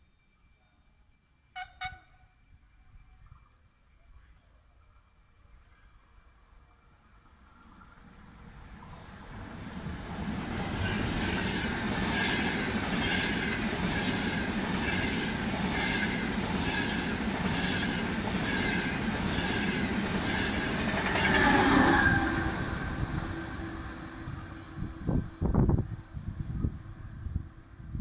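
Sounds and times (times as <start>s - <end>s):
train passing at speed: 7.0s - 28.0s
wheels clickety-clack on rails: 8.6s - 23.5s.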